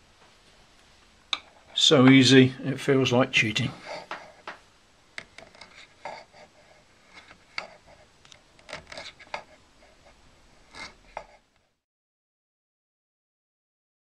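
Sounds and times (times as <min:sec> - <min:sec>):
metal tool scraping wax: 0:05.2 - 0:11.5.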